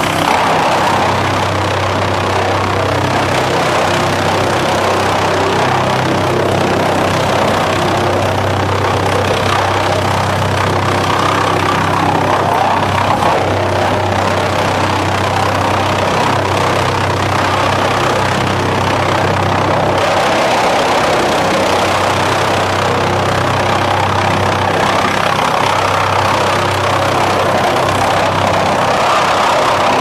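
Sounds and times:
wood chipper hum: 0:00.0 - 0:30.0.

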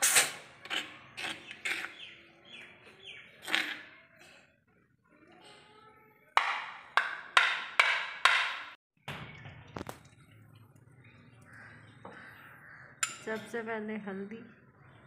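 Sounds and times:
metal spoon knocking ceramic plate: 0:06.4 - 0:08.8.

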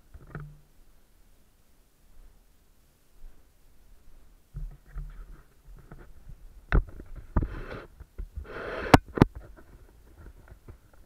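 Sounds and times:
rustling hisses: 0:07.4 - 0:09.0.

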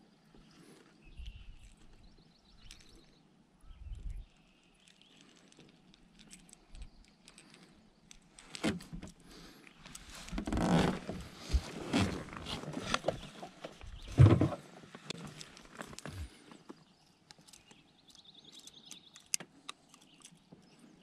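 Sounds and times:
knocks and rustles handling fish: 0:10.2 - 0:16.8.

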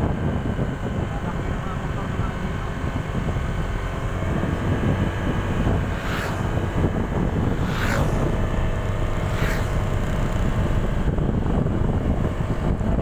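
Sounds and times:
motorcycle engine: 0:00.0 - 0:13.0
road rumble: 0:00.0 - 0:13.0
wind buffeting microphone: 0:00.0 - 0:13.0
falling whooshes: 0:05.8 - 0:10.5.

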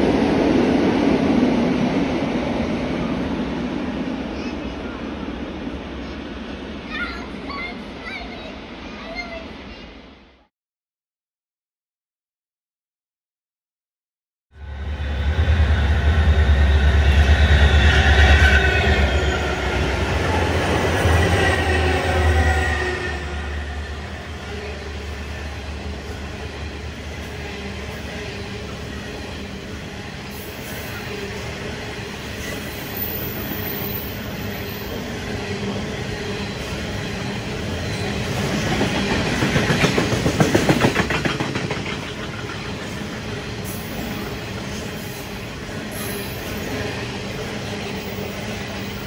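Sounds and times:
train wheels rumbling on rail: 0:14.6 - 0:49.0
clickety-clack of train wheels: 0:37.5 - 0:45.2.

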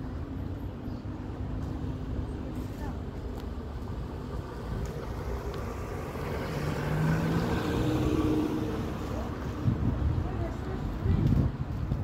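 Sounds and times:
street rumble: 0:00.0 - 0:12.0
vehicle engine passing by: 0:04.6 - 0:09.9.

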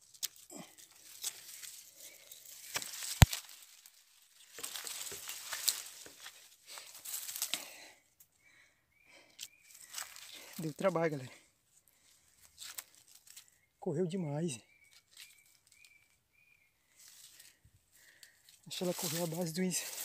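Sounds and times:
footsteps through dry leaves: 0:00.0 - 0:07.8, 0:09.7 - 0:11.2, 0:12.0 - 0:13.5, 0:14.9 - 0:16.1, 0:17.0 - 0:17.6, 0:18.4 - 0:20.0.

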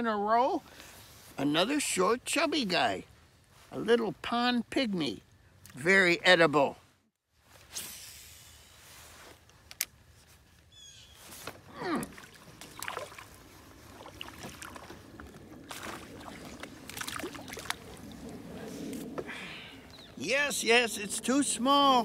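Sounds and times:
water splashing: 0:11.6 - 0:19.9.

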